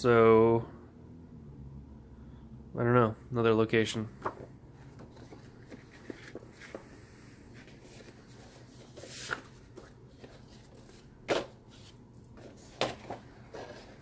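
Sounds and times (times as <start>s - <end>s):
paper stack tapping: 4.2s - 6.9s
glossy paper shuffling: 4.2s - 14.0s.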